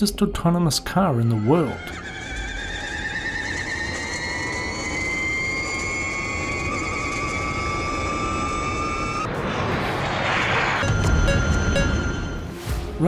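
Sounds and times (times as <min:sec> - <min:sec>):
electric motors whining: 0:01.5 - 0:09.3
rushing noise: 0:02.0 - 0:13.0.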